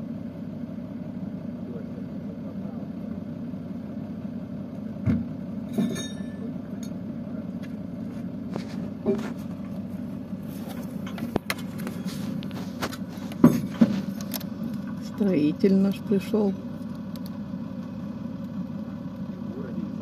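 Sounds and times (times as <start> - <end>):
truck engine idling: 0.0 - 20.0
sharp metallic clanks: 5.7 - 7.0.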